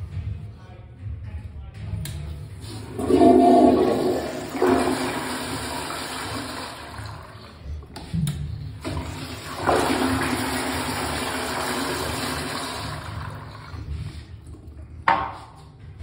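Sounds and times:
toilet flushing: 0:02.6 - 0:15.2
toilet seat knock: 0:15.0 - 0:15.6.

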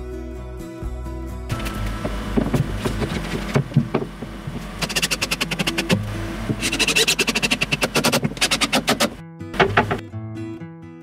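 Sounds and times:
background music: 0:00.0 - 0:03.6.

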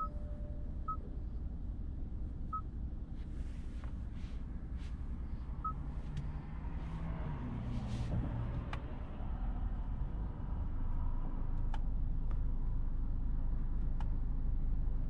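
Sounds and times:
short high beeps: 0:00.0 - 0:01.0
road and engine drone: 0:00.0 - 0:15.0.

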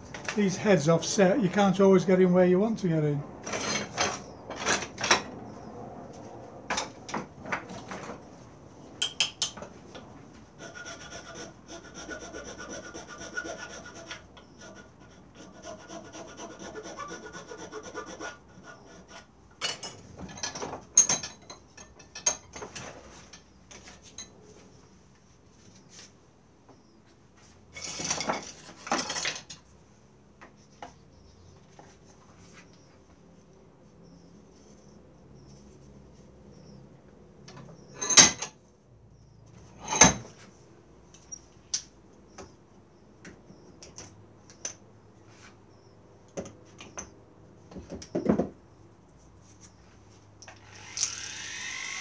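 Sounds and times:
hand tool rasping on wood: 0:10.6 - 0:19.4.

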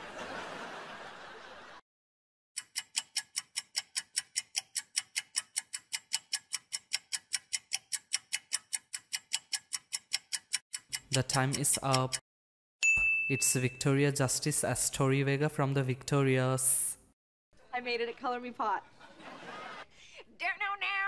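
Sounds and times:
clock ticking: 0:02.6 - 0:12.2.

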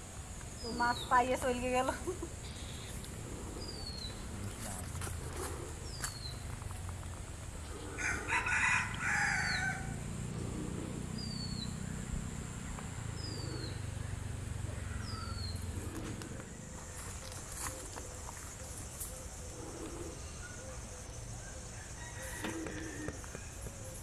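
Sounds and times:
rooster crowing: 0:07.9 - 0:10.1, 0:14.1 - 0:15.5, 0:21.4 - 0:23.7.

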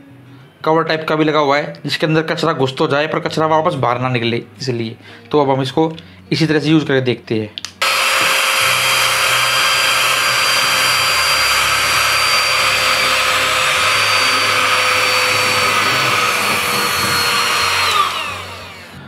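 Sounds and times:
handheld vacuum motor whine: 0:07.8 - 0:19.0.

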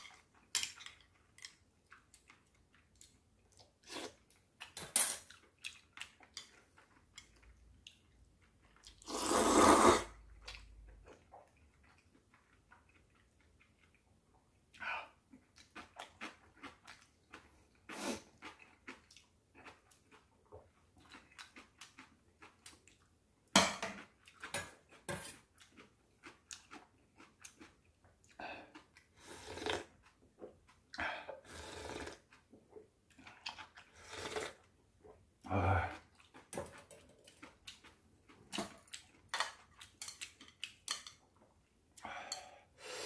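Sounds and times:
slurping and chewing noodles: 0:05.4 - 0:23.1, 0:24.0 - 0:41.2.

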